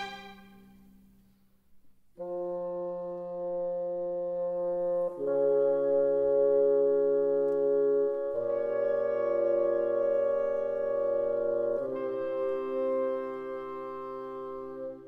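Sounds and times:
held brass chords: 0.0s - 0.8s, 2.2s - 15.0s
orchestral music: 0.0s - 0.9s.

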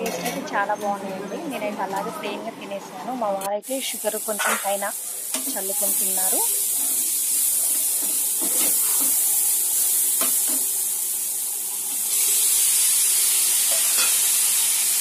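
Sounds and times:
beans sizzling in a pan: 3.6s - 15.0s.

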